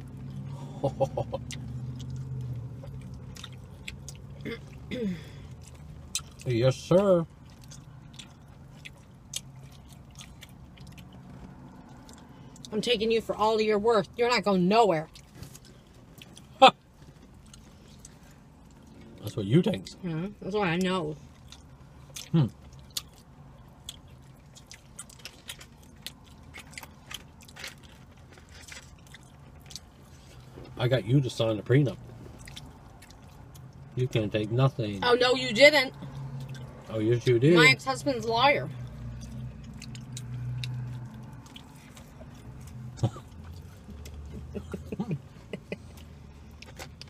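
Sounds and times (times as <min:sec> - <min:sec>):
low steady hum: 0:00.0 - 0:47.0
chewing and lip-smacking: 0:01.3 - 0:04.9, 0:05.5 - 0:06.6, 0:07.3 - 0:12.8, 0:15.1 - 0:20.0, 0:20.7 - 0:30.8, 0:32.0 - 0:34.0, 0:35.9 - 0:36.9, 0:38.7 - 0:47.0.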